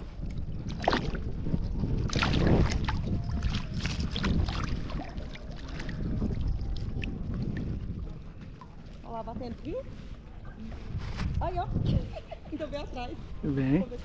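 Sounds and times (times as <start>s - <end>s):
lapping water: 0.0s - 9.1s
wind rumble on microphone: 0.0s - 14.0s
fish splashing at water surface: 0.7s - 1.3s, 2.0s - 7.2s.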